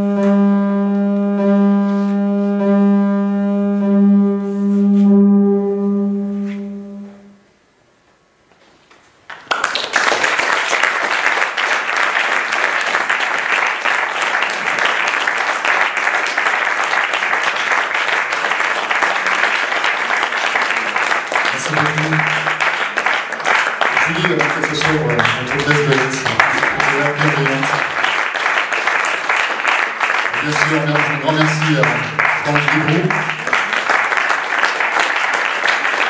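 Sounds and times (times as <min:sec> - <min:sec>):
electronic drone: 0:00.0 - 0:07.5
audience applauding: 0:09.3 - 0:36.0.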